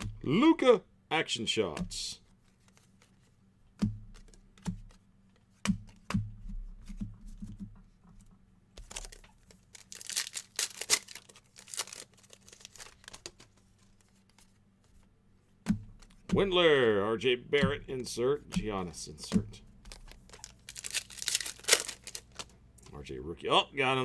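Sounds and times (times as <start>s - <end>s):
card pack wrapper crinkling: 8.8s - 14.6s, 19.8s - 23.0s.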